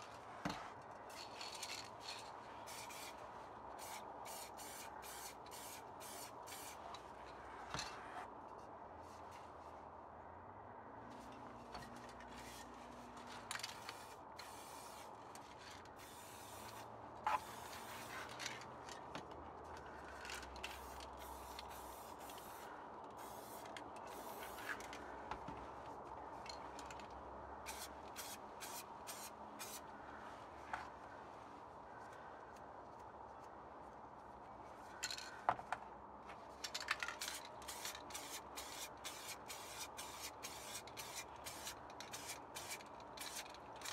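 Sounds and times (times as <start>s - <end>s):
spray paint can hissing: 2.7s - 3.2s, 3.8s - 6.8s, 13.8s - 15.1s, 16.0s - 18.1s, 20.6s - 24.8s, 27.7s - 29.8s, 37.1s - 43.5s.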